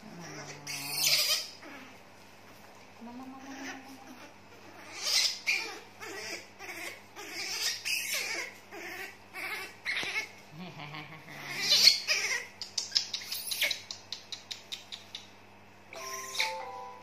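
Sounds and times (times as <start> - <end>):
baby monkey squealing: 0.2 - 1.9, 3.4 - 10.4, 11.3 - 13.8.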